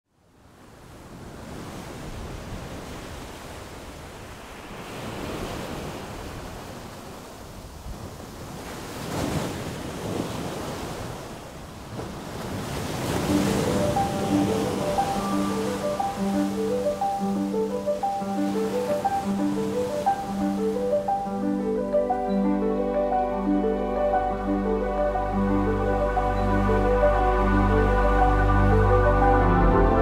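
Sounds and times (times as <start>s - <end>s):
sea surf washing in and out: 0.4s - 30.0s
music: 13.2s - 30.0s.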